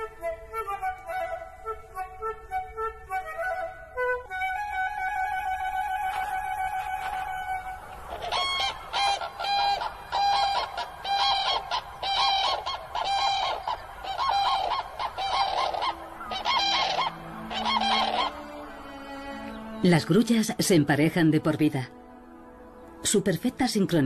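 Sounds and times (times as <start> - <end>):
cranes bugling calls: 6.1 - 20.2.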